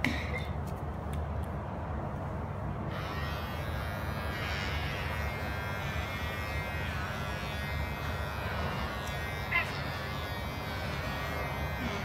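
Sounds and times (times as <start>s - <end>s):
pet hair clipper buzzing: 2.9s - 12.0s.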